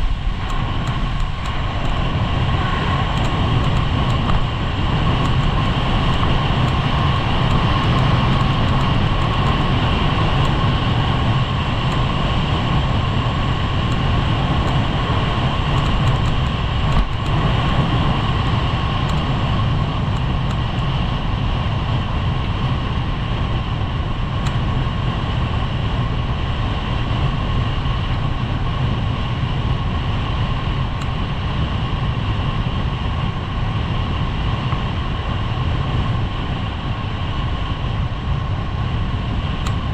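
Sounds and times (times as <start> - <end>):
wind on microphone: 0.0 - 39.9.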